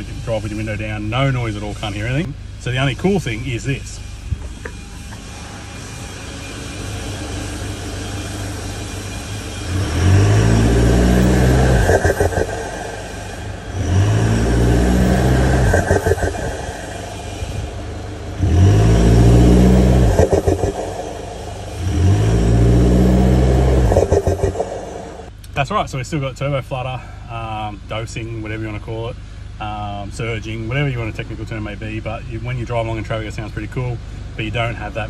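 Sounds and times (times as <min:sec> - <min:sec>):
diesel engine revving: 0:05.4 - 0:25.3
turbo flutter: 0:09.8 - 0:25.3.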